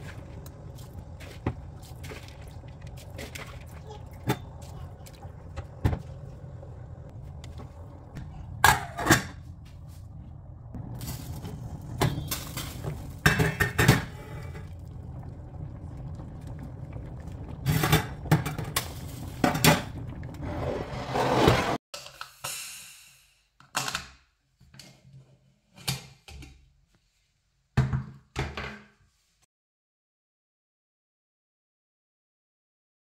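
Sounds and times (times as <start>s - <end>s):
steady low hum: 0.0s - 20.2s
rising rush of boiling pot: 0.0s - 21.8s.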